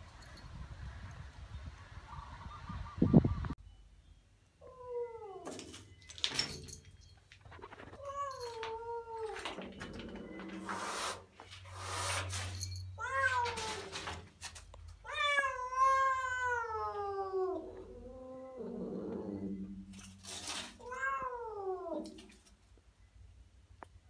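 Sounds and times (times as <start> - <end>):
rustling: 5.5 - 15.0, 19.4 - 21.2
cat yowling: 15.1 - 19.6, 20.8 - 22.2.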